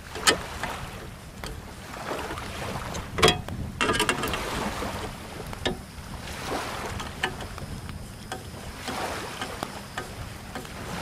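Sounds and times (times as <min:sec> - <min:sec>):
tools knocking: 0:03.2 - 0:04.4.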